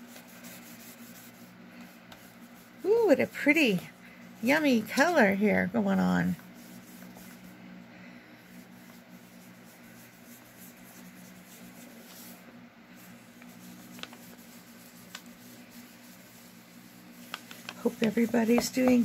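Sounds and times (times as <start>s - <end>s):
blending tool rubbing on paper: 0.0s - 19.0s.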